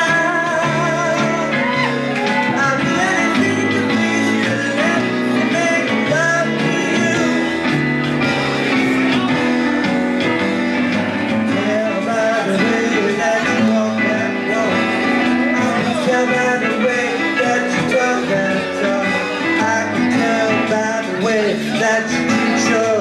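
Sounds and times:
instrumental backing music: 0:00.0 - 0:23.0
person singing into microphone: 0:00.0 - 0:23.0.

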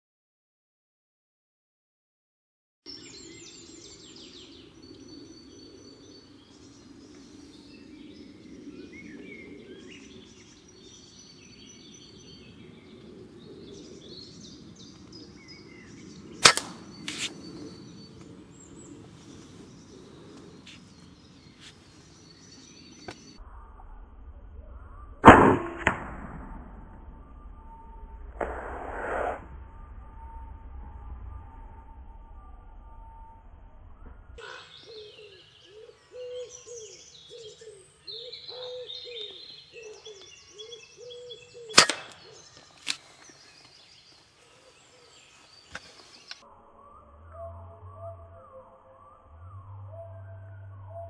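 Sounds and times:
birds chirping: 0:02.9 - 0:25.2, 0:27.0 - 0:51.0
steady outdoor hum: 0:02.9 - 0:51.0
air rifle firing: 0:16.4 - 0:17.3, 0:25.2 - 0:26.6, 0:41.7 - 0:42.2.

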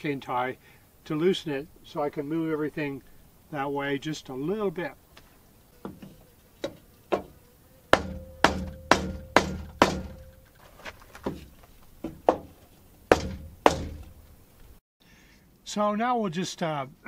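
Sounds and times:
hammer blows on wooden beam: 0:05.8 - 0:10.4, 0:13.1 - 0:14.2.

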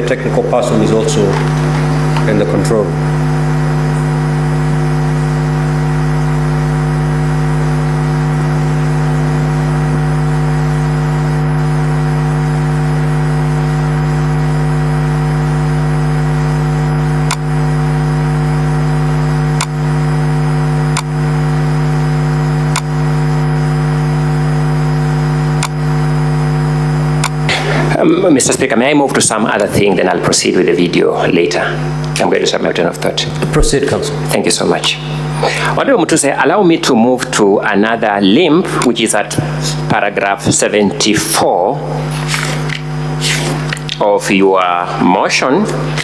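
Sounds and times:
loud electrical hum: 0:00.0 - 0:46.0
clicks: 0:17.3 - 0:17.5, 0:19.6 - 0:19.8, 0:20.9 - 0:21.1, 0:22.7 - 0:22.9, 0:25.6 - 0:25.8, 0:27.2 - 0:27.6.

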